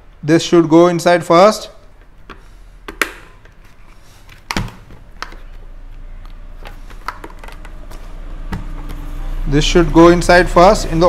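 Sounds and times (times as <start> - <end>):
plastic helmet visor clicks: 2.3 - 3.6.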